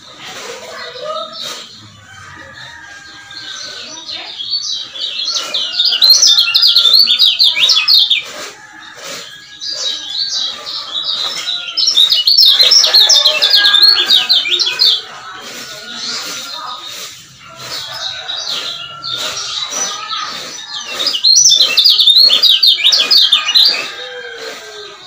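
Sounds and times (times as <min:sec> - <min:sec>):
bird chattering twitter: 0:03.5 - 0:08.4, 0:09.4 - 0:24.1.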